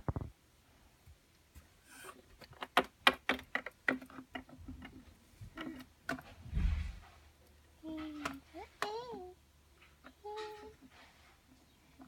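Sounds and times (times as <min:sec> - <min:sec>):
plastic toys clicking on hard floor: 0:02.4 - 0:05.0
dull thump: 0:06.5 - 0:07.0.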